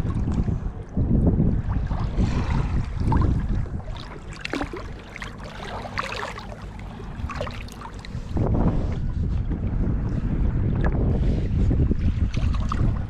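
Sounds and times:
wind rumble on microphone: 0.0 - 13.0
water splashing and dripping: 3.0 - 6.6.

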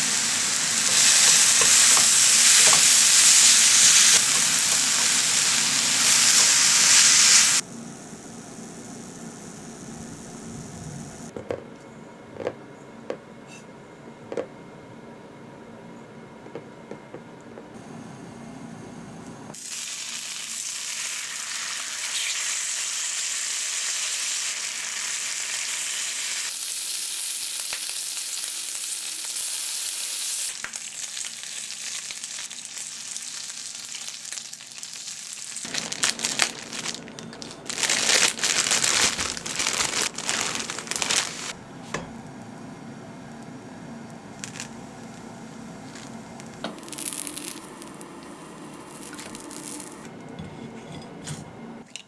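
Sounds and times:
bacon sizzling in a frying pan: 0.0 - 11.3, 19.6 - 37.0, 37.6 - 41.6, 45.8 - 50.1
crackling and clicking of frying oil: 0.7 - 6.5, 19.6 - 29.9, 30.5 - 37.7, 40.1 - 50.1.

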